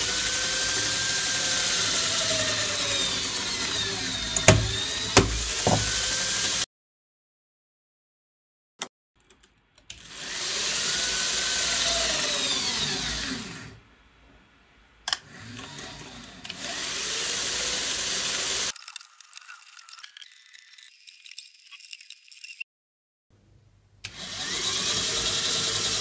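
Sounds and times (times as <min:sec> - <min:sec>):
gear motor whirring: 0:00.0 - 0:06.6
gear whine: 0:00.0 - 0:06.6
click: 0:15.1 - 0:15.7.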